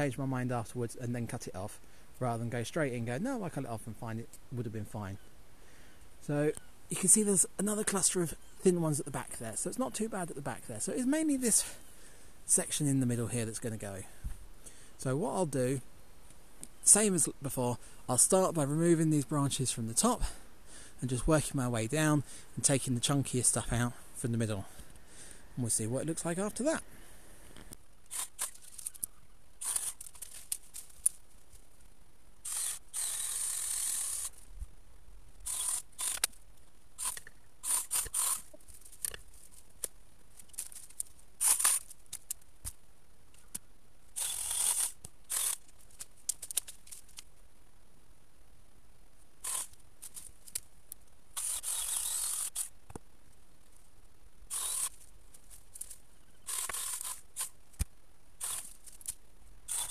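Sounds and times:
twigs snapping: 28.1 - 31.6, 36.0 - 43.7, 44.9 - 47.3
hand saw cutting branches: 37.0 - 38.5, 59.7 - 59.9.

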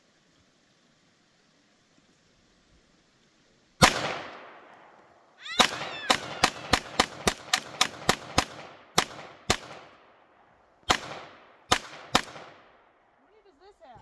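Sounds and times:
pistol shots: 3.8 - 4.7, 5.6 - 10.1, 10.9 - 12.8.

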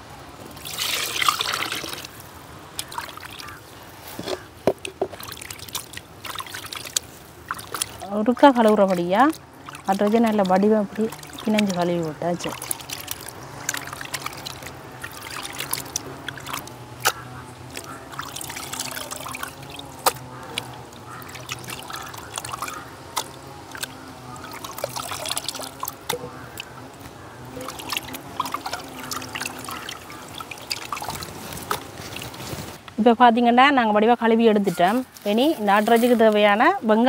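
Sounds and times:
water trickling and splashing: 0.0 - 37.0
meat washed by hand in bowl: 4.2 - 32.8.

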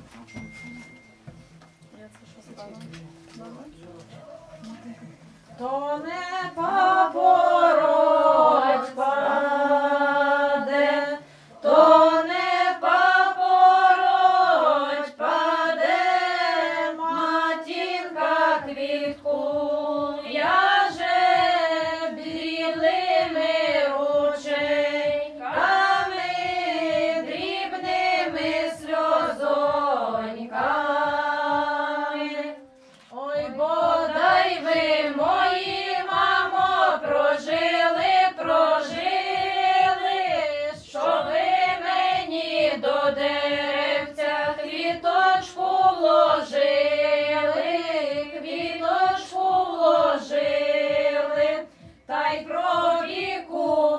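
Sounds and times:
women singing together: 5.5 - 53.9
singers breathing: 11.2 - 11.6.

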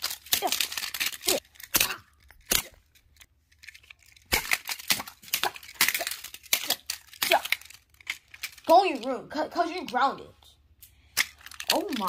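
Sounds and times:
rustling: 0.0 - 8.7
toy cars clattering: 0.0 - 10.2, 11.1 - 12.0.

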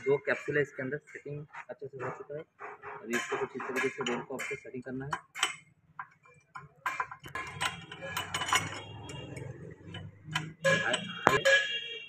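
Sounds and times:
sharp metal knock: 3.0 - 5.6, 10.0 - 11.7
metal clicks and clinks: 3.2 - 11.7.

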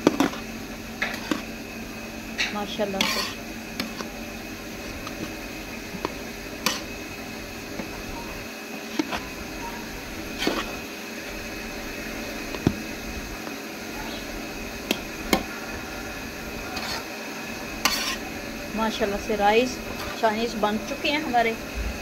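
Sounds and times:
metal spoon scraping metal pot: 1.0 - 1.5, 2.4 - 4.1, 6.0 - 6.9, 10.3 - 10.8, 16.7 - 17.1, 17.8 - 18.3.

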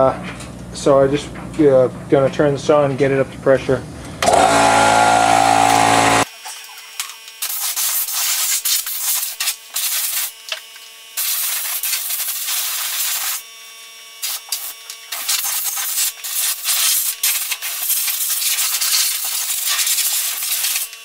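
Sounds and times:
compressed air blow gun hissing: 7.4 - 10.3, 11.2 - 13.4, 14.2 - 20.9.

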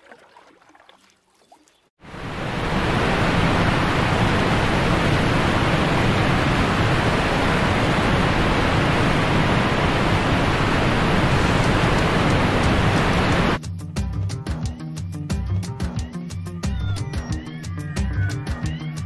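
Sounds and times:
river rushing over rocks: 2.1 - 13.6.

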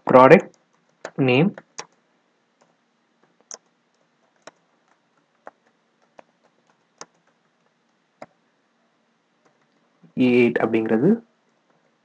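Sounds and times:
typing on computer keyboard: 2.6 - 8.4.

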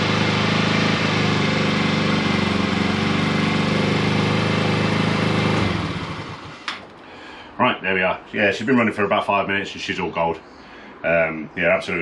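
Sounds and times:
scooter engine idling: 0.0 - 6.7.

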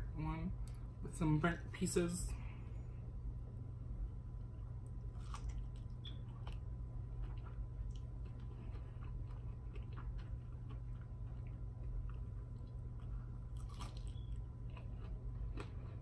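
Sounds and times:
low hum: 0.0 - 16.0
person chewing crunchy food: 4.6 - 16.0.

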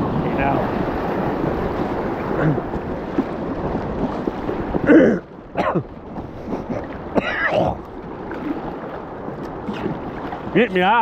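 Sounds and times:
river water rushing and splashing: 0.0 - 11.0.

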